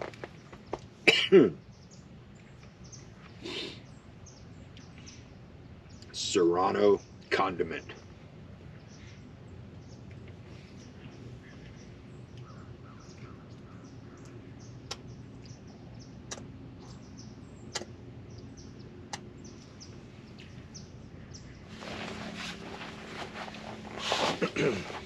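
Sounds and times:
birds chirping: 0:00.0 - 0:25.0
low background rumble: 0:00.0 - 0:25.0
sharp clicks: 0:16.3 - 0:16.5, 0:17.7 - 0:18.0.

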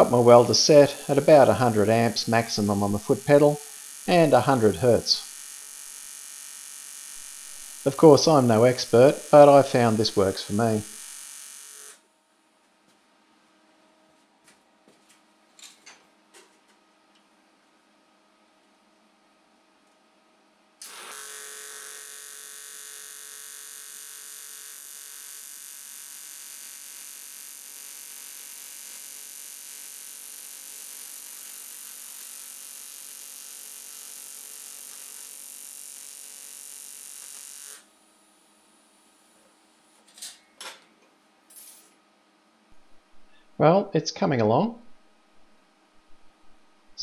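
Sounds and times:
welding arc buzzing: 0:00.0 - 0:12.0, 0:20.8 - 0:39.3.

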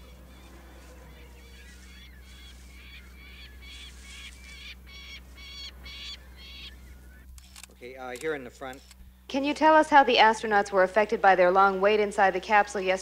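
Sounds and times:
bird calling: 0:00.0 - 0:09.3
low steady hum: 0:00.0 - 0:13.0.

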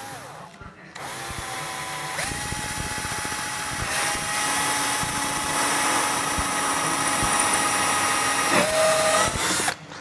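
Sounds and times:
cordless drill boring through deck: 0:00.0 - 0:00.4, 0:01.0 - 0:09.8.

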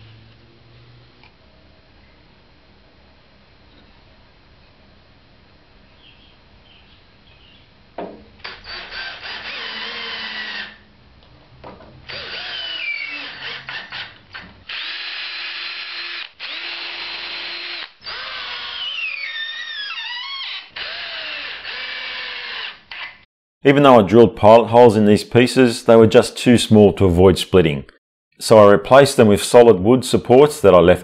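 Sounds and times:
cordless drill whining: 0:08.4 - 0:10.9, 0:12.1 - 0:23.2.

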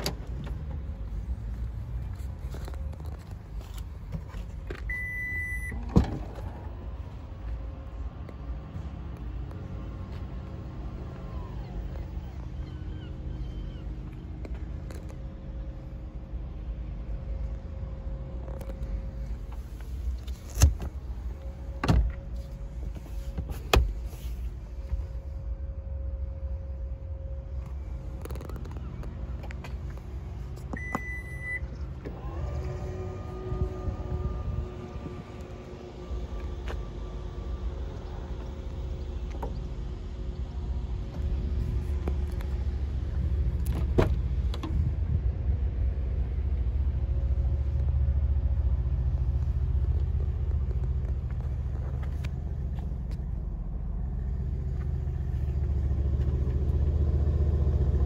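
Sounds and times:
steady low rumble: 0:00.0 - 0:58.0
seat frame and latch clunks: 0:20.2 - 0:21.0, 0:21.7 - 0:24.1, 0:43.4 - 0:44.9
low rumble on microphone: 0:32.6 - 0:57.5.

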